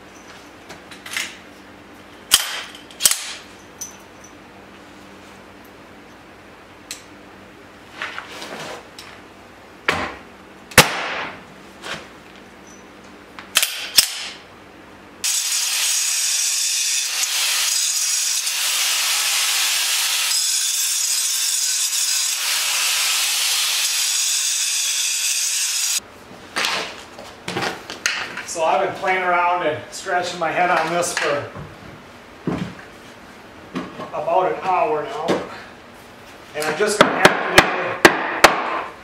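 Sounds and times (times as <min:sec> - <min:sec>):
angle grinder grinding concrete: 0:15.2 - 0:26.0
brief tool bursts: 0:15.2 - 0:26.0.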